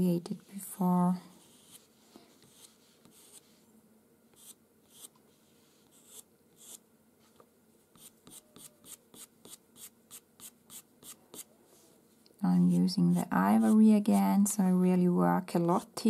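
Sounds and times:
pencil scratching on paper: 0:01.4 - 0:03.6, 0:04.4 - 0:06.8, 0:07.9 - 0:11.5, 0:12.6 - 0:14.2.

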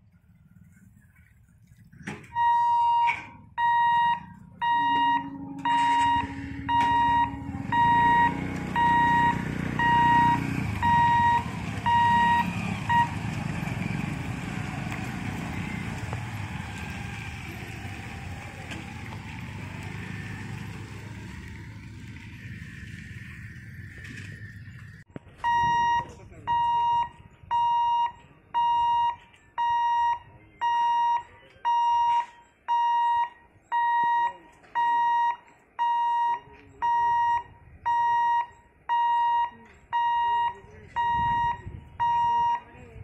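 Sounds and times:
level-crossing warning buzzer beeping: 0:02.3 - 0:13.2, 0:25.4 - 0:42.7
motorcycle engines running: 0:04.2 - 0:27.5.

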